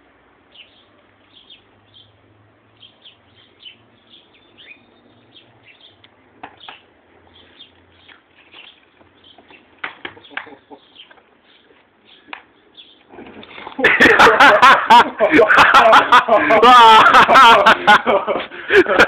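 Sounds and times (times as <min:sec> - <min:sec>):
small birds chirping: 0:00.4 - 0:13.8.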